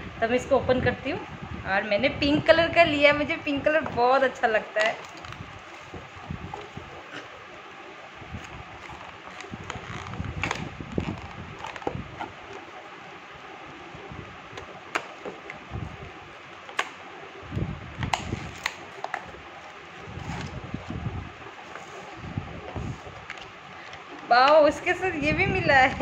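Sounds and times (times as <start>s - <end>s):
packaging clicks and crinkles: 4.8s - 6.9s, 8.4s - 12.8s, 18.0s - 20.8s.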